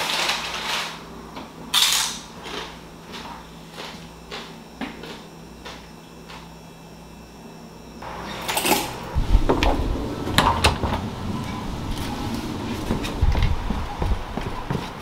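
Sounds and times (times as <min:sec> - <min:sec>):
outdoor background noise: 0:04.2 - 0:15.0
footsteps on wooden stairs: 0:12.0 - 0:15.0.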